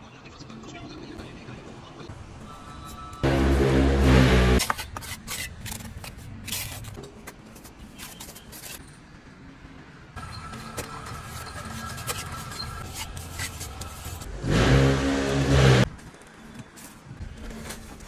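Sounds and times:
loud pitched drone: 0:03.2 - 0:04.6, 0:14.4 - 0:15.9
steady hum: 0:03.2 - 0:04.6
trowel scraping metal basin: 0:03.2 - 0:07.0.

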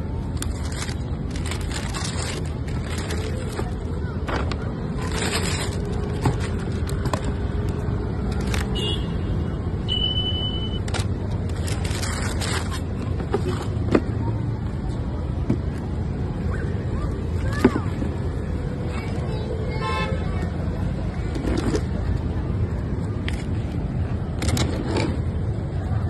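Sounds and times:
tissue paper rustling: 0:00.4 - 0:03.7, 0:05.0 - 0:06.9.

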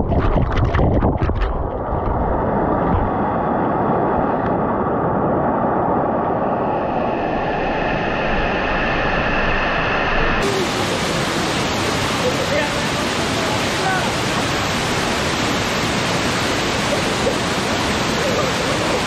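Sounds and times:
waterfall rushing over rocks: 0:10.4 - 0:19.0.

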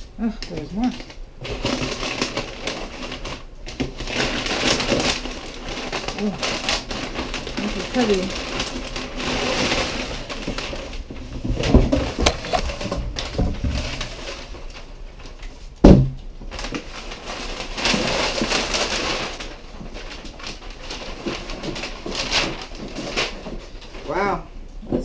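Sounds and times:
packing paper rustling: 0:00.0 - 0:24.4
heavy thump: 0:15.8 - 0:16.2.

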